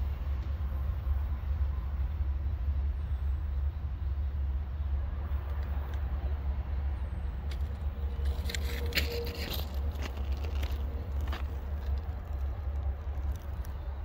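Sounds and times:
train cars rumbling on rails: 0.0s - 14.0s
metallic wheel clicks and scrapes: 7.4s - 13.8s
wheel squeal: 8.2s - 11.4s.

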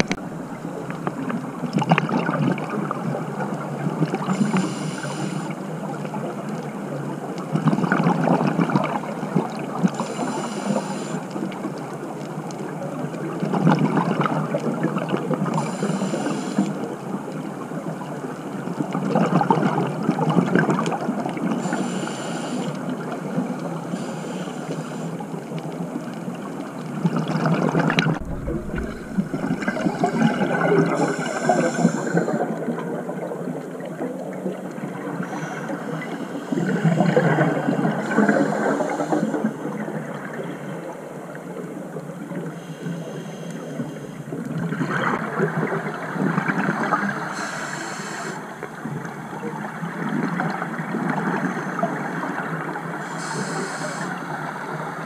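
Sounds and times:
gurgling bubbles underwater: 0.0s - 55.0s
diver breathing through regulator: 4.3s - 5.6s, 10.0s - 11.4s, 15.6s - 16.8s, 21.6s - 22.8s, 28.2s - 32.7s, 38.0s - 39.6s, 42.6s - 44.2s, 47.3s - 48.5s, 53.0s - 54.4s.

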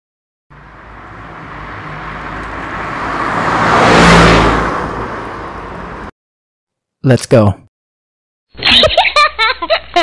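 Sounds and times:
car driving past: 0.5s - 6.1s.

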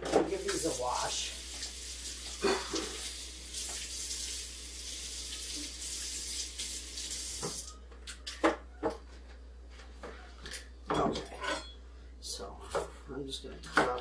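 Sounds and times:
tap water running: 0.0s - 7.8s.

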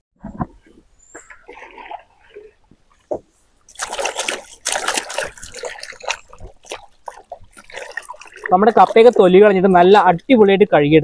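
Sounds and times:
water splashing from hand washing: 1.2s - 10.0s.

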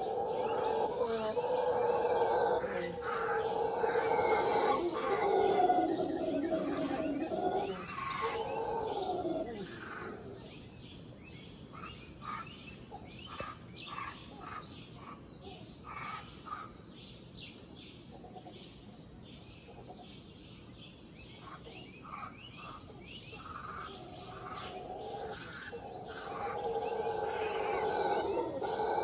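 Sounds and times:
howler monkeys howling: 0.0s - 10.6s, 23.4s - 29.0s
birds chirping: 0.0s - 29.0s.

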